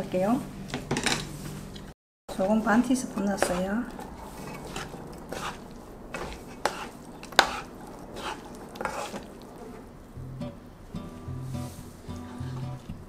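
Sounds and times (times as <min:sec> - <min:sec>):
wooden spatulas scraping a pan: 0:00.2 - 0:09.9, 0:11.5 - 0:12.9.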